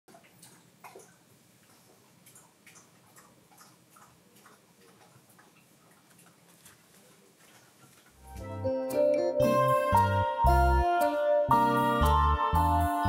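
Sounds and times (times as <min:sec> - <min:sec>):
tinkling music with deep beat: 0:08.4 - 0:13.0.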